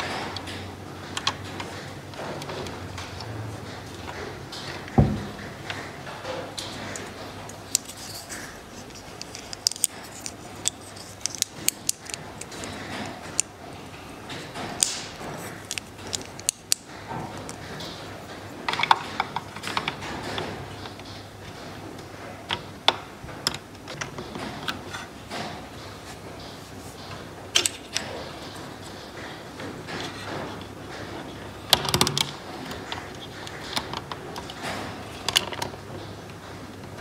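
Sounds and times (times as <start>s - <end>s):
small hard parts clicking: 0.0s - 37.0s.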